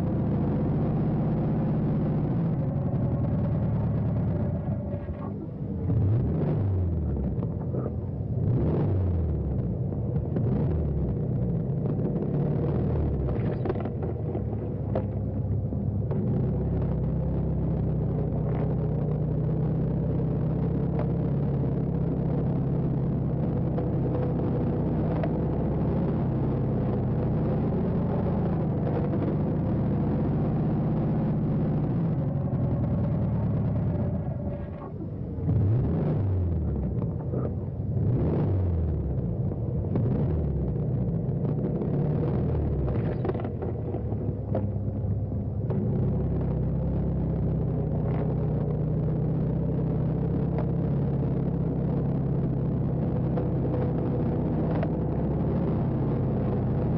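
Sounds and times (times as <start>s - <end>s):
car engine running: 0.0s - 56.9s.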